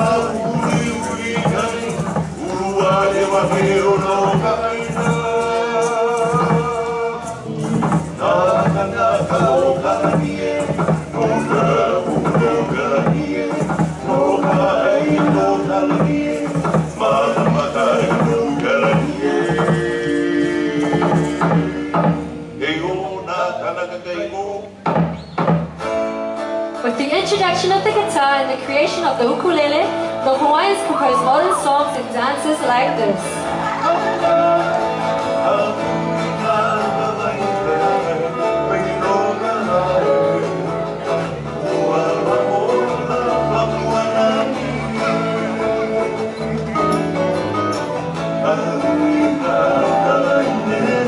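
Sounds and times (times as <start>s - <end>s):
steady drum beats: 0.0s - 22.6s, 24.8s - 26.0s
chant with long held notes: 0.0s - 24.6s, 48.3s - 51.0s
guitar and ukulele music: 0.0s - 51.0s.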